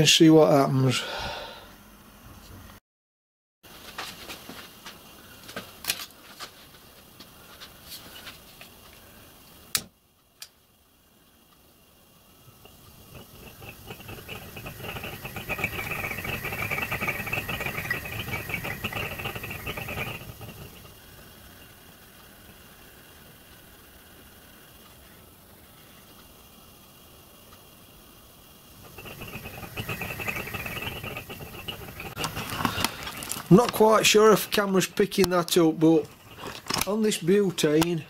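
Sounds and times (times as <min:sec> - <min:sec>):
gas burner rushing hiss: 0:00.8 - 0:01.8, 0:11.7 - 0:38.0.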